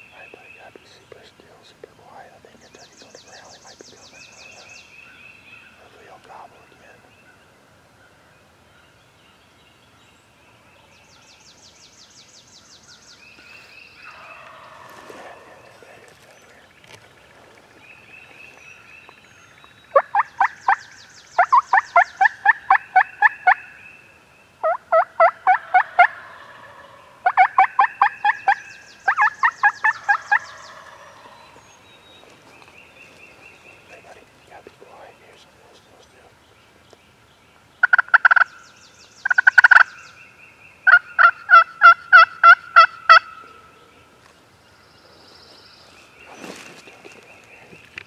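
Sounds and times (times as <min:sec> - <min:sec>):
faint songbirds trilling: 0:00.0 - 0:48.0
wild turkey yelping: 0:21.4 - 0:23.7, 0:24.6 - 0:31.6, 0:37.8 - 0:38.5, 0:39.2 - 0:39.9, 0:40.8 - 0:43.6.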